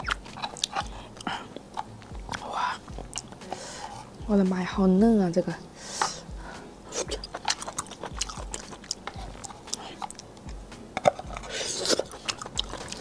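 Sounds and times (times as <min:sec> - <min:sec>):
biting and chewing: 0:00.0 - 0:04.2, 0:06.0 - 0:13.0
wet mouth clicks: 0:00.0 - 0:04.2, 0:06.9 - 0:13.0
sucking slurp: 0:11.0 - 0:13.0.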